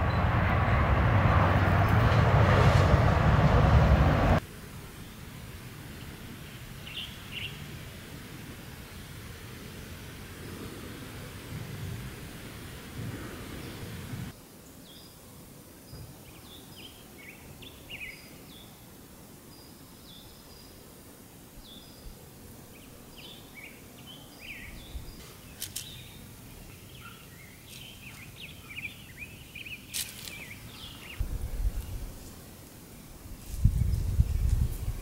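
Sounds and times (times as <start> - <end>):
small birds chirping: 21.6 - 35.0.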